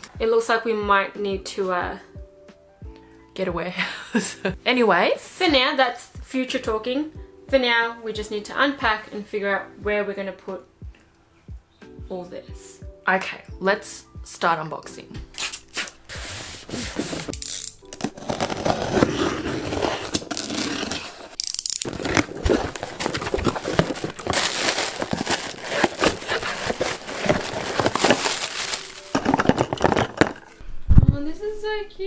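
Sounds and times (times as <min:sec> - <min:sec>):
cardboard box flaps scraping: 0:16.1 - 0:17.3, 0:18.1 - 0:30.3
plastic packing crackling: 0:16.6 - 0:30.6
cardboard cartons knocking together: 0:21.8 - 0:30.5.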